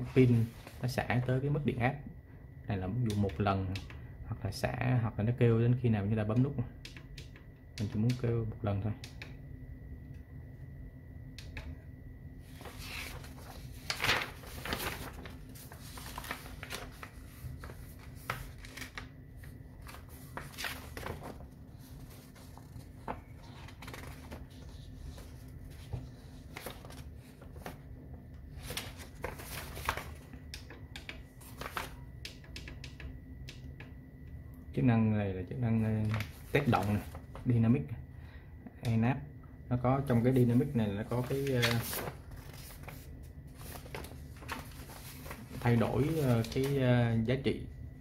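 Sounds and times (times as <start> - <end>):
paper pages rustling: 0.0 - 0.9, 12.4 - 32.0, 36.0 - 37.5, 40.1 - 46.9
faint high whine: 0.0 - 48.0.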